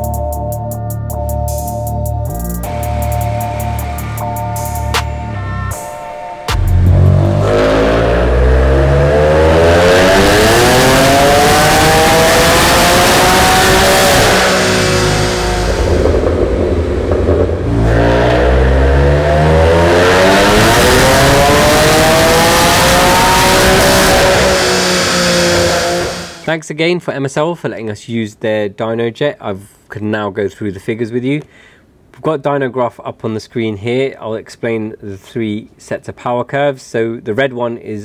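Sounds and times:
car engine revving on dyno: 6.6 - 26.5.

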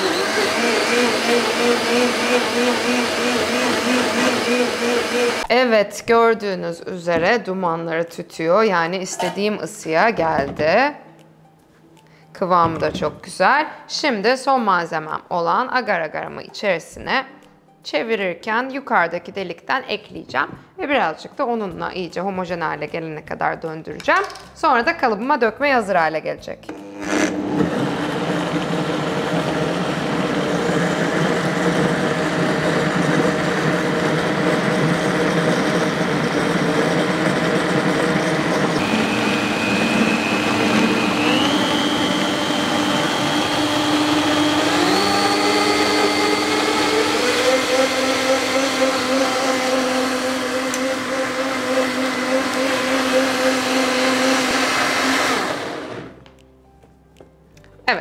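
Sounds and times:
blender motor running: 0.0 - 5.5, 26.7 - 56.2.

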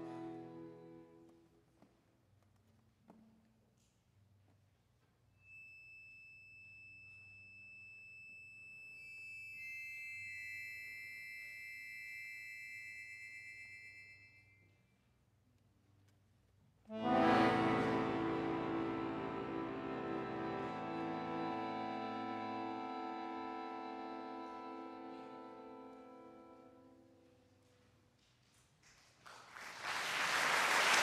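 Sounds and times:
loud accordion chord: 16.9 - 26.9
accordion high sustained notes: 16.9 - 27.2.

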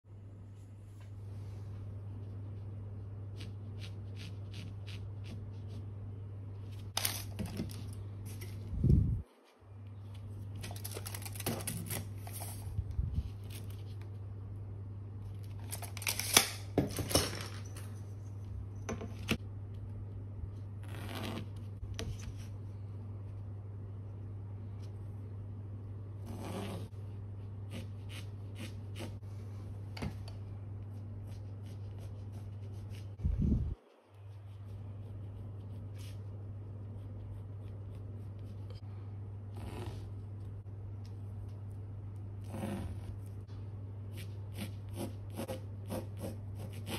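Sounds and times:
steady low hum: 0.0 - 46.9
pencil scratching on canvas: 26.3 - 29.2, 44.1 - 46.9.

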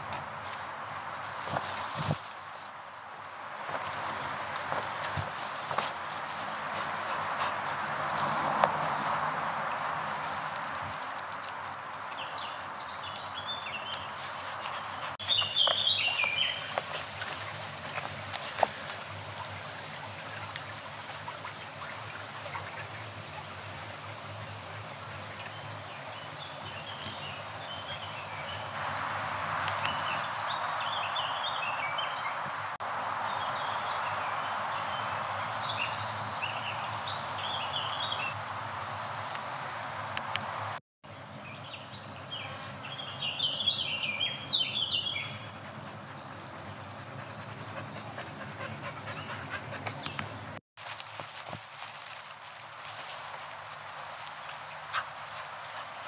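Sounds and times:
birds chirping: 0.0 - 0.6, 3.7 - 50.6, 51.2 - 56.0
brook trickling: 3.5 - 40.8.

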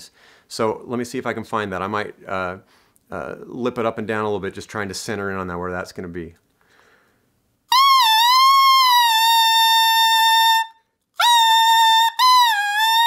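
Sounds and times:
saxophone mouthpiece tone: 7.7 - 13.0.

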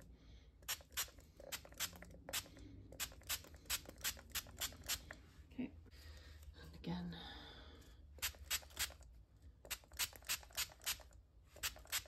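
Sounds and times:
spray bottle squirts: 8.2 - 9.0, 9.6 - 12.0.

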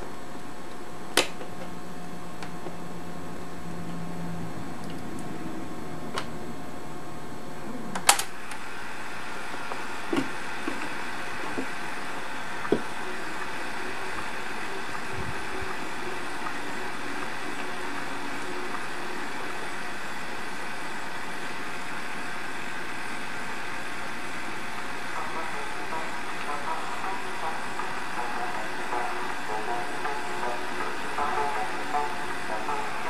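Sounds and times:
tape recorder whirring: 0.0 - 33.0
tape recorder clicks: 8.0 - 8.6.

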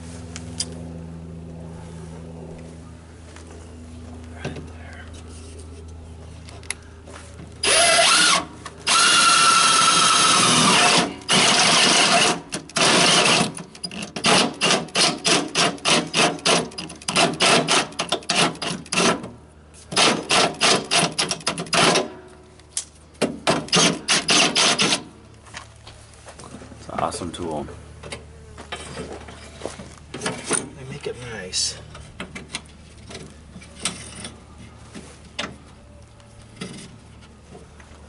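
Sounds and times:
cordless drill running: 7.6 - 13.5.

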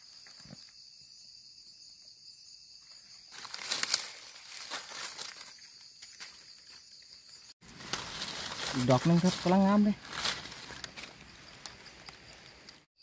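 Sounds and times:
faint high insect drone: 0.0 - 13.0
dry leaves rustling and crackling: 3.3 - 12.9.

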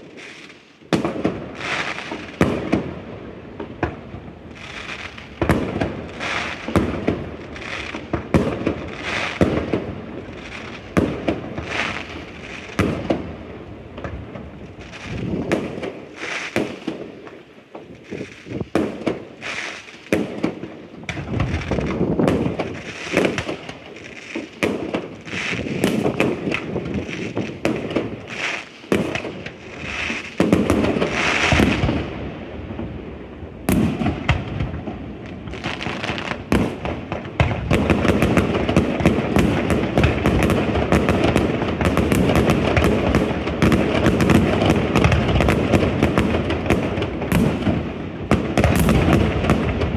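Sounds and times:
fireworks bursting with crackle: 0.0 - 49.9.

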